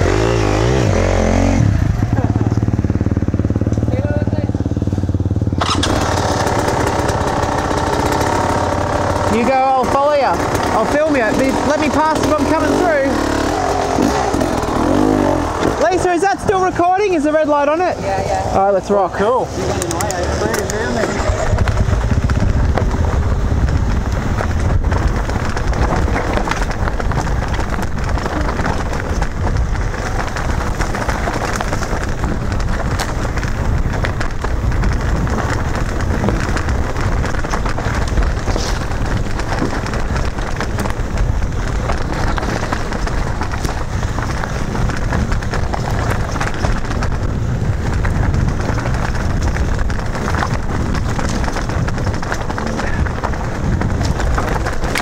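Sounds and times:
tyres crunching over gravel: 5.6s - 55.0s
wind on microphone: 19.5s - 55.0s.

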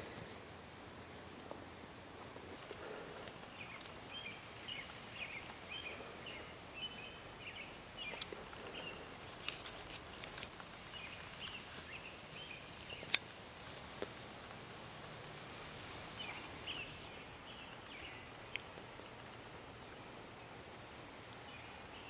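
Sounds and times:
steady background hiss: 0.0s - 22.0s
high chirping calls: 16.2s - 18.3s.

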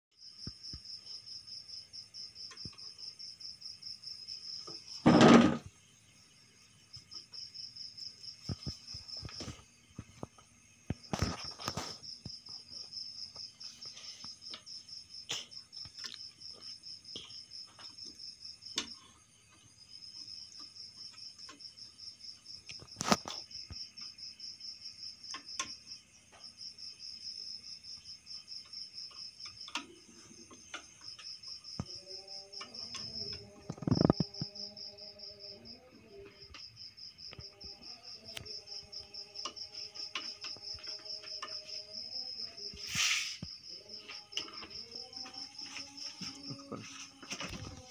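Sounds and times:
knocks and thumps on wood: 5.0s - 5.7s
insect trilling: 26.8s - 47.9s.

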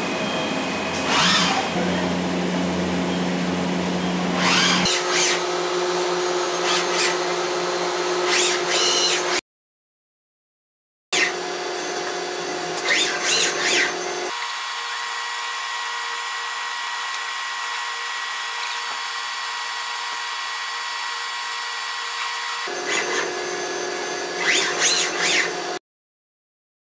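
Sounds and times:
machine hum: 0.0s - 9.3s
robot arm servo motors whining: 0.9s - 2.0s, 4.0s - 5.4s, 6.4s - 7.4s, 8.0s - 9.4s, 11.2s - 25.8s.

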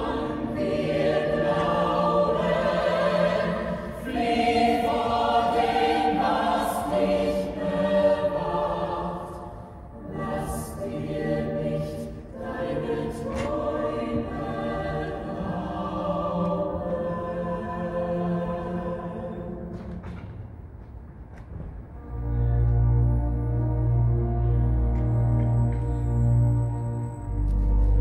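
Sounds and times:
chorus singing held notes: 0.0s - 19.9s.

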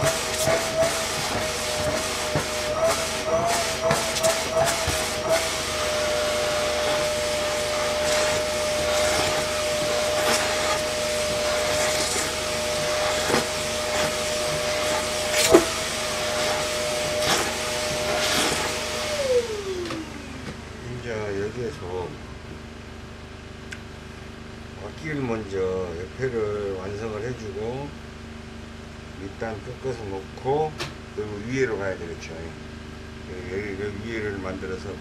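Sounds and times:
rushing hiss of suction: 0.0s - 19.7s
vacuum cleaner motor whine: 0.0s - 22.9s.

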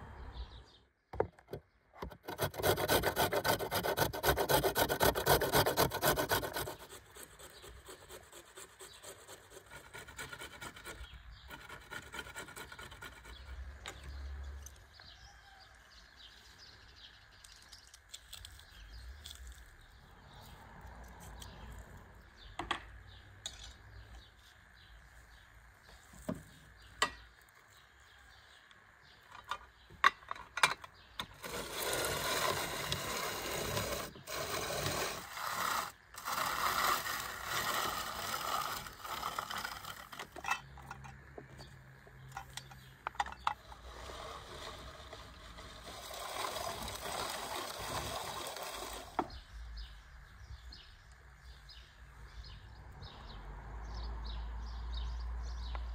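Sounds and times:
rotary grater rasping grind: 2.0s - 13.7s, 31.4s - 41.0s, 43.6s - 49.4s.

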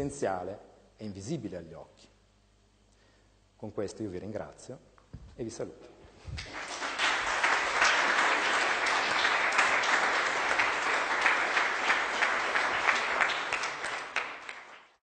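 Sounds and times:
audience applauding: 6.4s - 15.0s.

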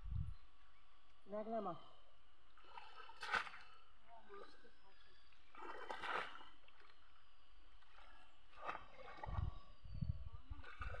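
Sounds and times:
water splashing and sloshing: 2.4s - 4.5s, 5.3s - 11.0s.

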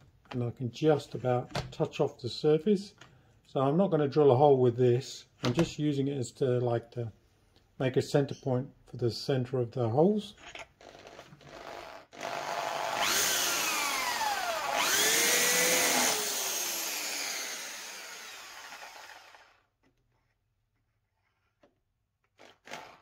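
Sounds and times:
electric hand drill spinning: 10.8s - 19.7s, 22.4s - 23.0s.

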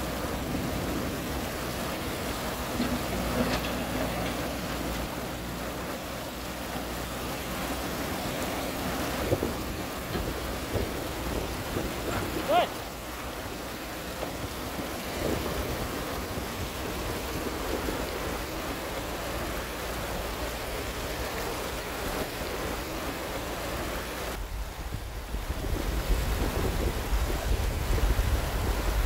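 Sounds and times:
fast-flowing river rushing: 0.0s - 29.0s
wind buffeting microphone: 6.5s - 23.4s, 24.0s - 29.0s.

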